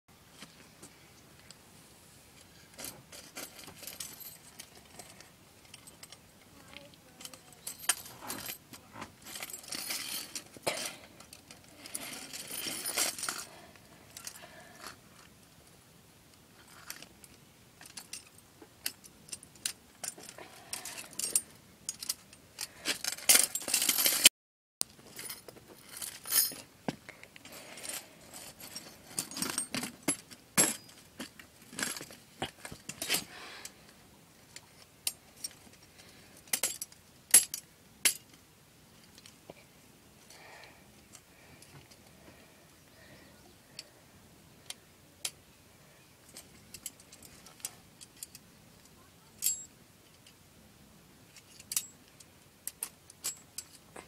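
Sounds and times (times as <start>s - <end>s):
metal trap clinking and rattling: 2.7s - 6.2s, 7.2s - 15.0s, 17.8s - 24.3s, 25.1s - 26.7s, 27.4s - 33.4s, 35.0s - 38.4s, 49.4s - 49.7s, 51.4s - 52.0s.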